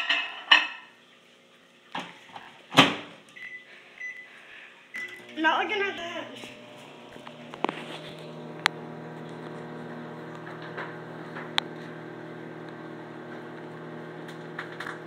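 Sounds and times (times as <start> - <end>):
microwave humming: 2.7 - 15.0
mixture popping: 6.4 - 15.0.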